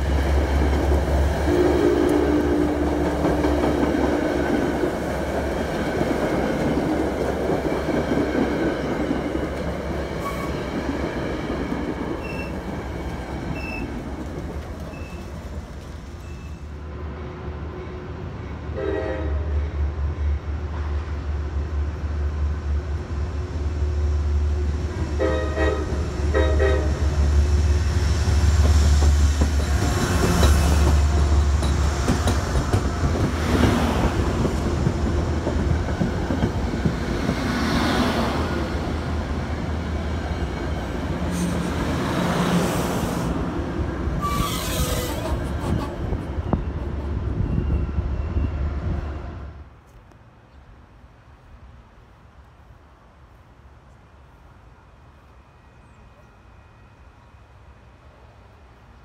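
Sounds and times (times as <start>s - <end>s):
diesel locomotive engine rumble: 0.0s - 59.0s
train coaches rolling past: 0.0s - 59.0s
train horn blasts: 1.4s - 4.8s, 18.6s - 19.8s, 25.1s - 27.3s, 44.2s - 45.5s.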